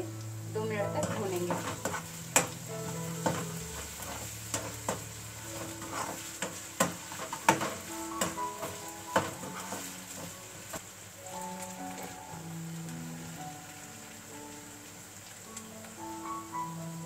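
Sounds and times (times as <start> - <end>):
onion and potato sizzling in oil: 0.0 - 17.0
metal spoon scraping a pan: 1.0 - 10.8
spoon clicking against pan: 4.0 - 10.3.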